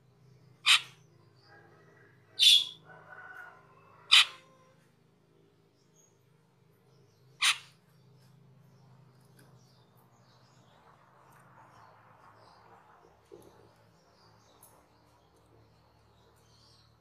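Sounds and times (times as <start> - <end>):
soft bird chatter: 0.0 - 17.0
starling loud calls: 0.6 - 1.0, 2.4 - 2.8, 4.0 - 4.6, 7.3 - 7.8.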